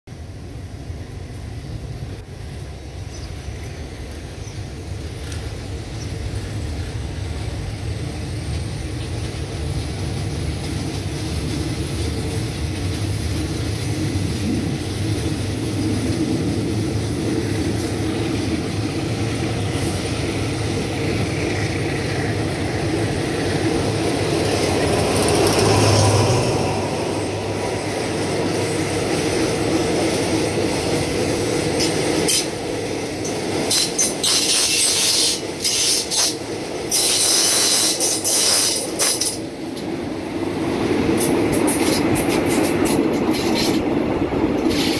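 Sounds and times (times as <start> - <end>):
locomotive engine rumble: 0.1 - 34.3
train wheels clattering: 2.6 - 44.9.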